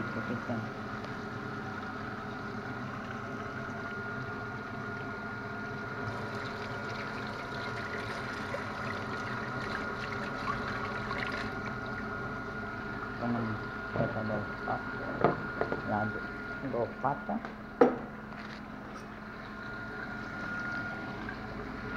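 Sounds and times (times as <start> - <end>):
machine hum with whine: 0.0 - 21.9
tap running into sink: 15.2 - 15.9, 17.8 - 18.1.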